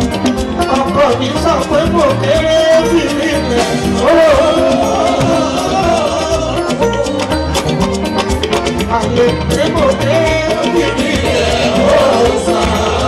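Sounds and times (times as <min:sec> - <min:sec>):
drums and band playing: 0:00.0 - 0:13.0
man singing into microphone: 0:02.1 - 0:07.0, 0:09.0 - 0:13.0.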